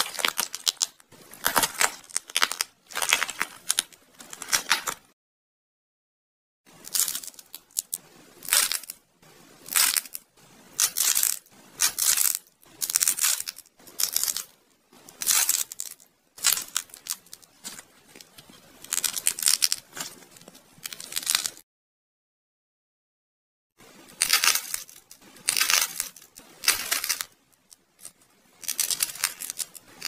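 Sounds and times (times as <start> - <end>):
dried clay crackling crunches: 0.0 - 5.1, 10.8 - 21.6, 24.2 - 30.0.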